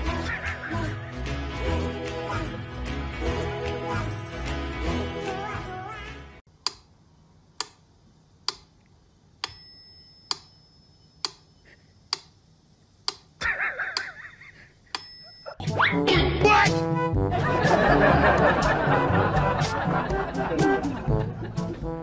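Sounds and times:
clock ticking: 13.0 - 13.4.

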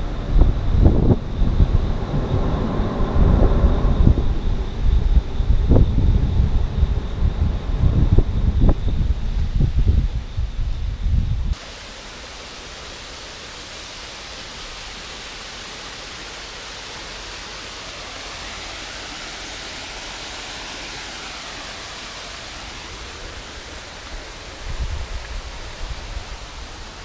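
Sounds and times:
fast-flowing river rushing: 11.6 - 27.0.

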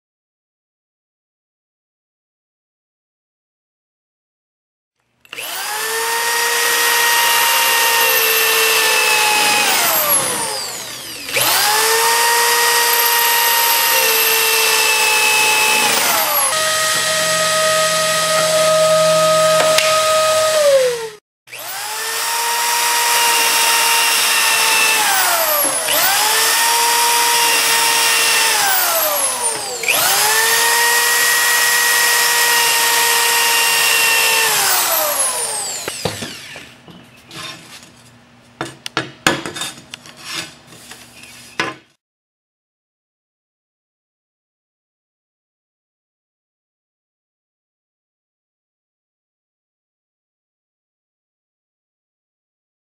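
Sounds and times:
electric drill motor whine: 5.3 - 36.8
drill bit grinding tile: 5.3 - 37.6.

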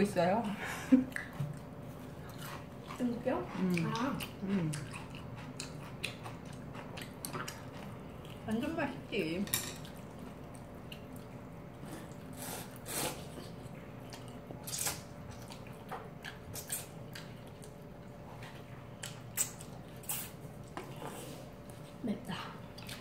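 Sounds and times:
faint steady hum: 0.0 - 23.0
chewing: 1.0 - 8.7, 9.8 - 23.0.

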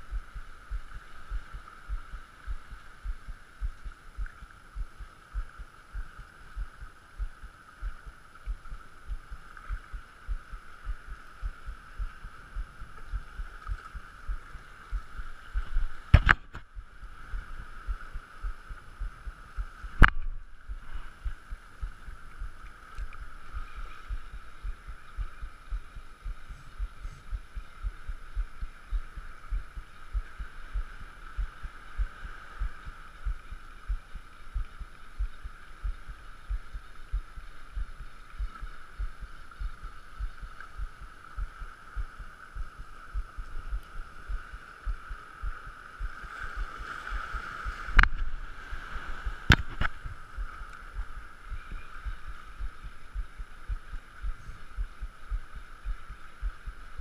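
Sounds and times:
sea hiss: 37.0 - 51.6.

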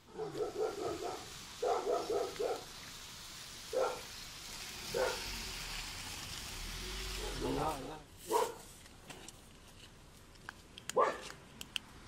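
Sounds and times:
dog barking: 0.1 - 2.7, 3.7 - 4.1, 4.9 - 5.2, 8.3 - 8.6, 11.0 - 11.3.

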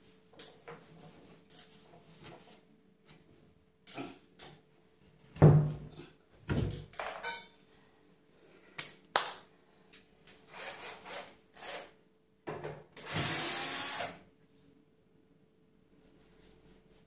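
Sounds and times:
tools and cabinet parts clattering: 6.5 - 7.6
metallic ring: 7.2 - 7.6.

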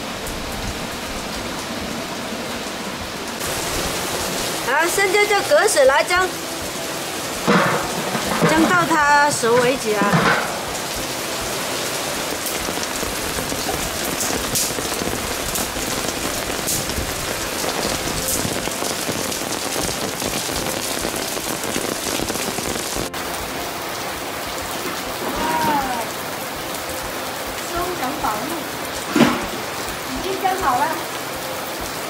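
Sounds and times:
steady rain hiss: 0.0 - 32.0
separate drops: 7.4 - 11.0.

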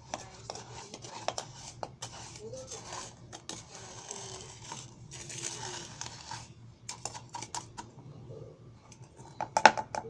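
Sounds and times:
spoon scraping coffee grounds: 0.0 - 8.0.

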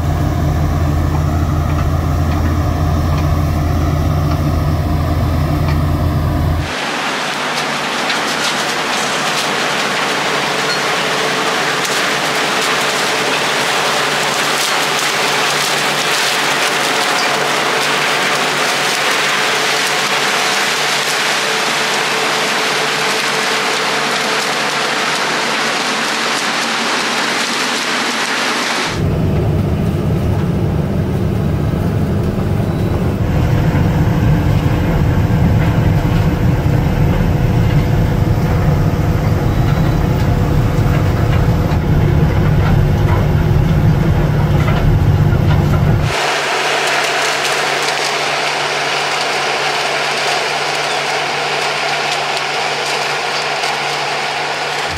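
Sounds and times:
tractor drone from inside cab: 0.0 - 7.3, 27.4 - 54.9
potato harvester conveyor running: 0.0 - 54.9.

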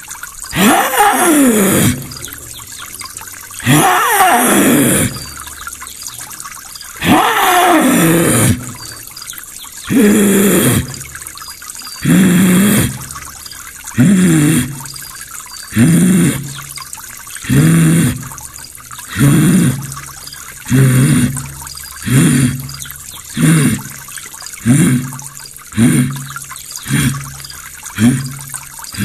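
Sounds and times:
man imitating animal call: 0.5 - 2.2, 3.6 - 5.3, 7.0 - 8.8, 9.9 - 11.0.

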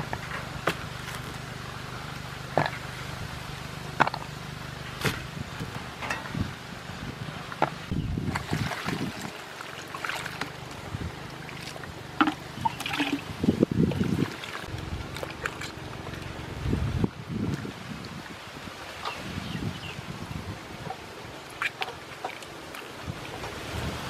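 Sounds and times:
water splashing in a metal bowl: 8.2 - 15.8.

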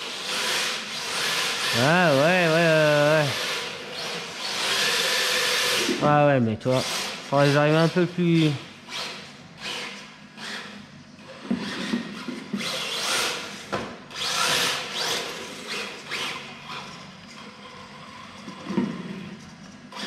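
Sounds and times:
electric motor whining: 0.0 - 6.2.

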